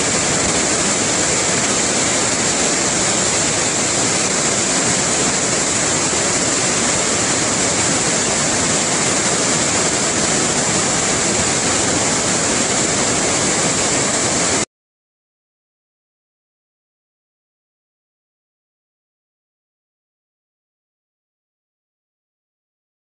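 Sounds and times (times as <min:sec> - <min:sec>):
waterfall rushing over rocks: 0:00.0 - 0:14.7.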